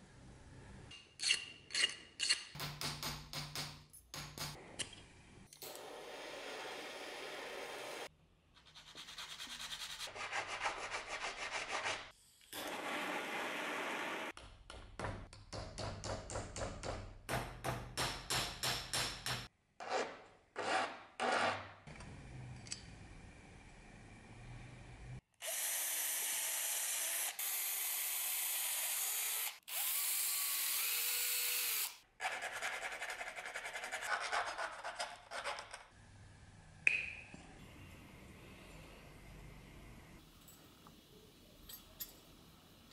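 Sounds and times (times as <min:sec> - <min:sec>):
cordless drill boring through metal: 0:25.4 - 0:32.0.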